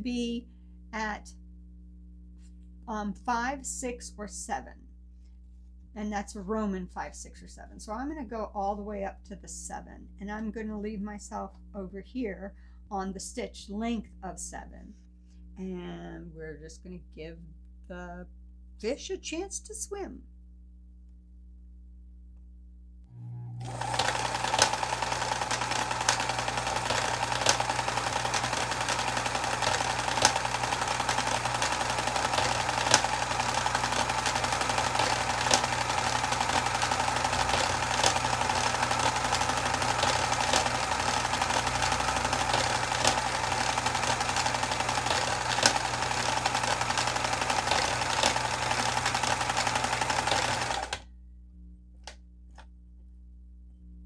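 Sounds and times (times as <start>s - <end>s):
sewing machine running: 23.6s - 51.0s
sewing machine tick: 23.6s - 51.0s.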